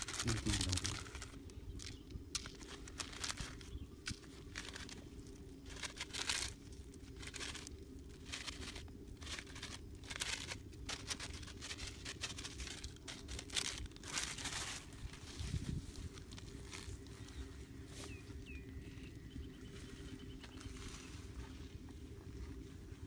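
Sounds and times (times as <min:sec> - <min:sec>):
plastic bag rustling: 0:00.0 - 0:17.4
grain scattering through grass: 0:00.0 - 0:18.6.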